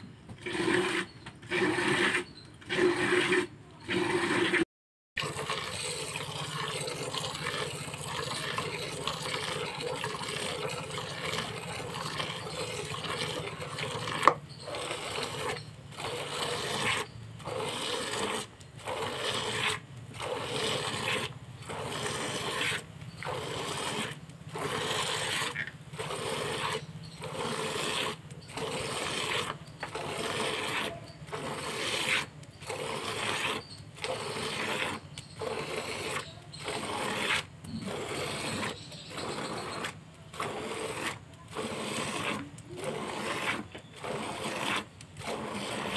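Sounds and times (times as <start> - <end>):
milk squirting into plastic bucket: 5.2 - 22.6.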